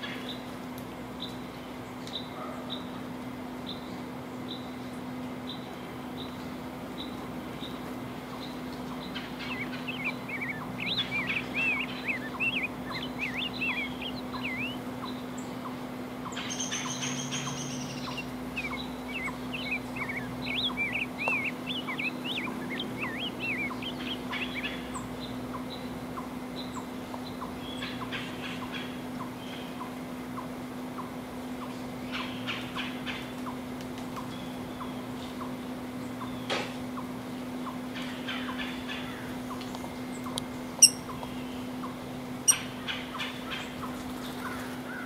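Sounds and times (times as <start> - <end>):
steady low hum: 0.0 - 45.0
songbird warbling: 8.4 - 31.1, 36.2 - 45.0
high thin bird call: 9.4 - 14.8, 17.5 - 24.6, 40.8 - 41.1.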